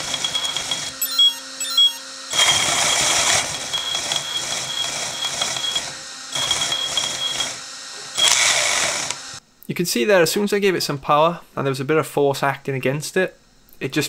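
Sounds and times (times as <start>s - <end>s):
electric motor whining: 0.0s - 9.4s
motor chirps: 0.0s - 9.4s.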